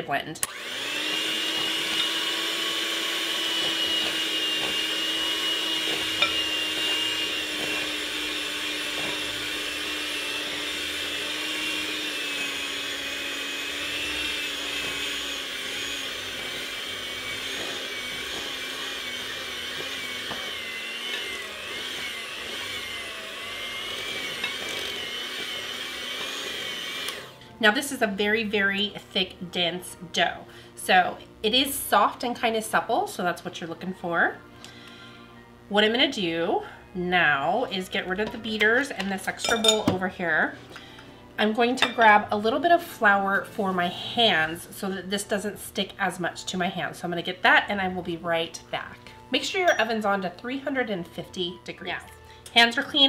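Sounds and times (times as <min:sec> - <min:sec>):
electric mixer whining: 0:00.4 - 0:28.2.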